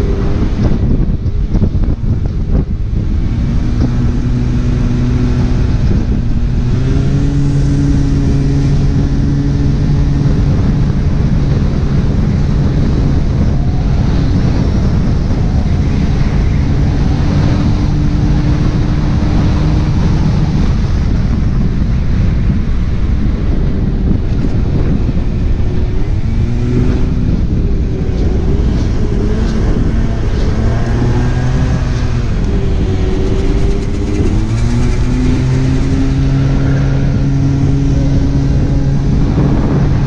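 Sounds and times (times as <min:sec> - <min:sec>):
wind buffeting microphone: 0:00.0 - 0:40.0
scooter engine running: 0:23.7 - 0:40.0.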